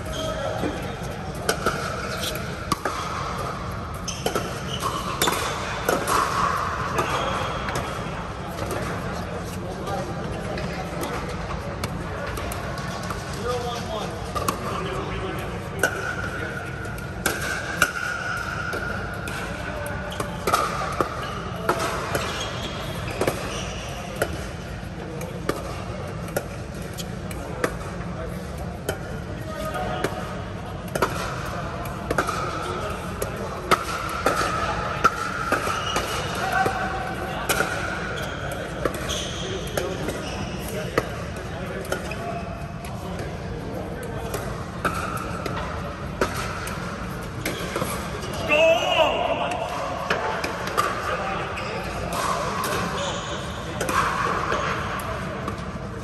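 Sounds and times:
people talking: 0.0 - 46.8, 47.4 - 55.7
ball bouncing on court: 0.1 - 9.0, 29.8 - 36.8, 37.4 - 41.2.

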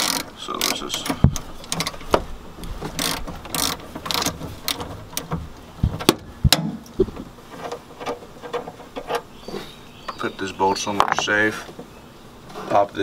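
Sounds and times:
hand ratchet clicking: 0.0 - 2.0, 2.9 - 5.3.

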